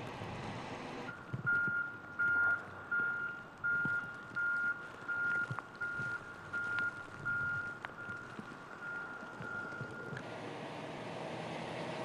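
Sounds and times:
backup alarm beeping: 0:01.1 - 0:10.2.

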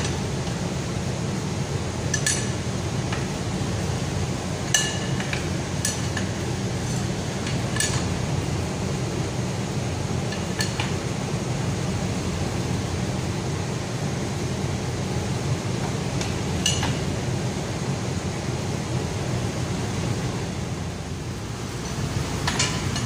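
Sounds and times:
steady low hum: 0:00.0 - 0:23.0.

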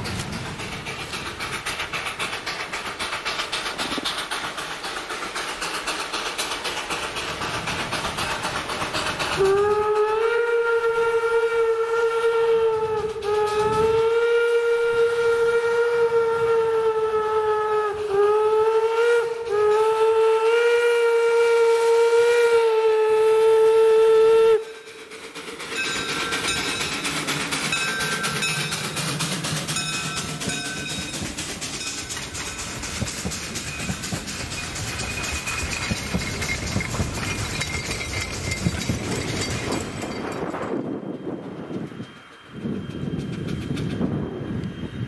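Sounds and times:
steam locomotive exhaust chuffing: 0:00.0 - 0:45.0
steam whistle blasts: 0:09.4 - 0:24.8.

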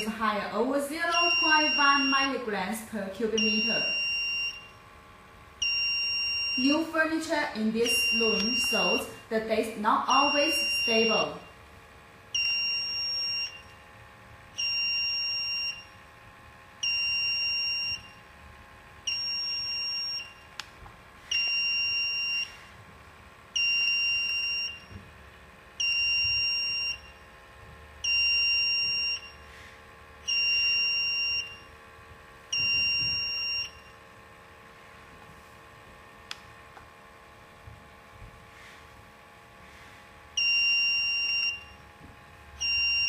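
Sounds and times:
faint steady hum: 0:00.0 - 0:43.0
electronic alarm beep: 0:01.1 - 0:02.4, 0:03.4 - 0:04.8, 0:05.6 - 0:07.0, 0:07.8 - 0:09.3, 0:10.0 - 0:11.6, 0:12.3 - 0:13.7, 0:14.6 - 0:16.0, 0:16.8 - 0:18.2, 0:19.1 - 0:20.5, 0:21.3 - 0:22.6, 0:23.6 - 0:25.0, 0:25.8 - 0:27.3, 0:28.0 - 0:29.5, 0:30.2 - 0:31.7, 0:32.5 - 0:34.0, 0:40.4 - 0:41.8, 0:42.6 - 0:43.0.

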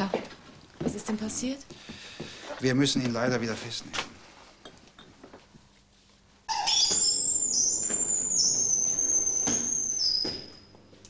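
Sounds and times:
high whistling tone: 0:06.5 - 0:10.7.

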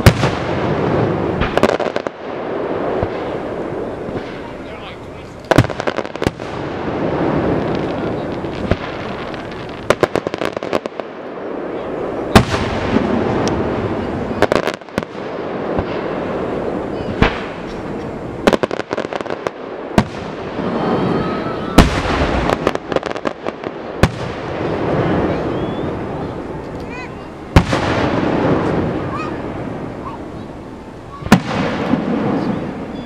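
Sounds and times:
continuous rumble: 0:00.0 - 0:33.0
fireworks bangs: 0:00.0 - 0:33.0
fireworks crackling: 0:00.0 - 0:33.0
gliding firework whistle: 0:25.0 - 0:26.3.

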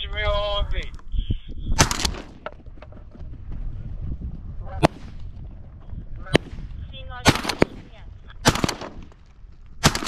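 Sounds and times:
sharp crack: 0:04.8 - 0:05.3, 0:07.3 - 0:10.0.

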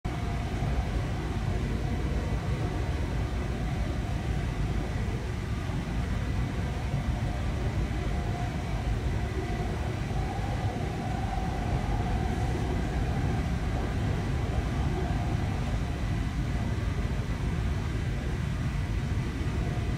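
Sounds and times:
faint hum: 0:00.1 - 0:19.9.

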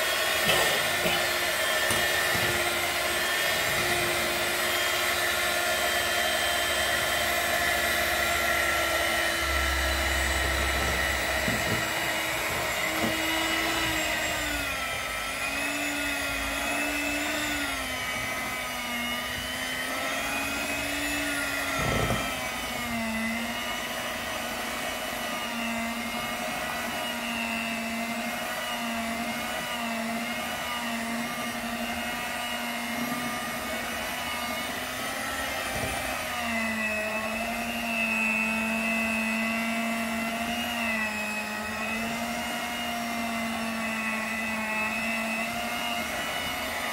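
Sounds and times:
electric hand mixer whining: 0:00.0 - 0:46.9.

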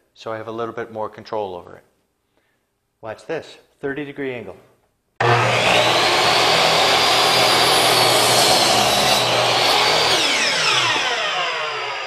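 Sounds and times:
miter saw motor whine: 0:05.2 - 0:12.0
saw blade cutting wood: 0:05.2 - 0:12.0.

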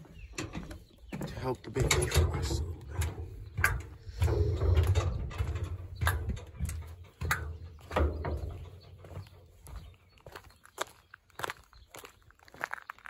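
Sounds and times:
metallic clanks: 0:00.0 - 0:09.8
footsteps on metal ramp: 0:00.0 - 0:12.9.

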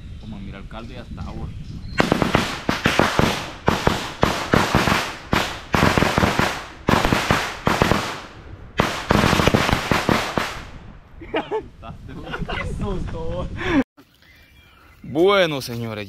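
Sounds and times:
loud rapid crackling pops: 0:02.0 - 0:10.8.

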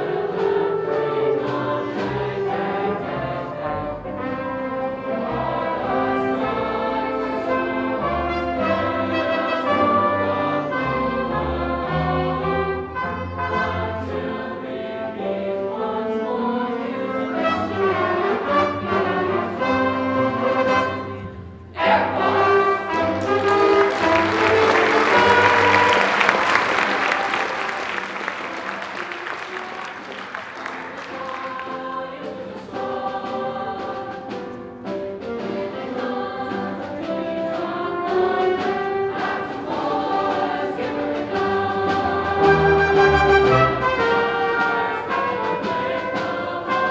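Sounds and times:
band accompanying: 0:00.0 - 0:46.9
choir singing held notes: 0:00.0 - 0:46.9.

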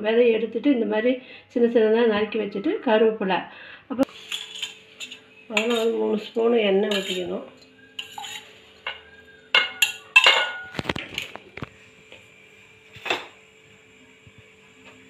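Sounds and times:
metal cookware clinking: 0:04.1 - 0:10.9.

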